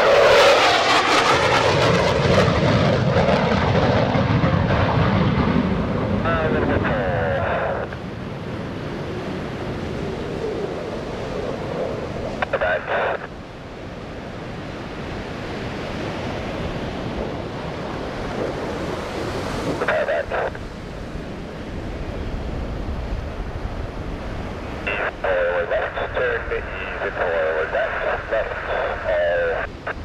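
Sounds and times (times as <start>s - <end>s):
distant jet roar: 0.0s - 30.0s
surf roaring: 0.0s - 30.0s
public-address voice: 6.2s - 8.0s, 12.4s - 13.3s, 19.8s - 20.6s, 24.9s - 30.0s.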